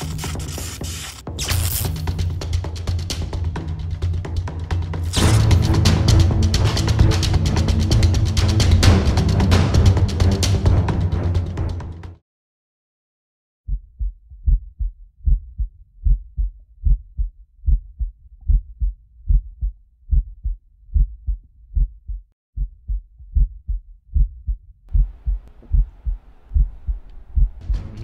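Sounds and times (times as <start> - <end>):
heartbeat thuds: 13.7 - 28.0
faint steady hiss: 25.0 - 27.6.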